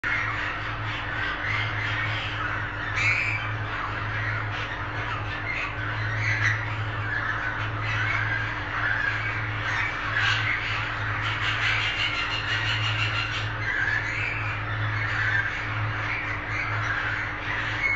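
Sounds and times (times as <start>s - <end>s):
budgerigars chattering and chirping: 0.0s - 17.9s
steady low hum: 0.0s - 17.9s.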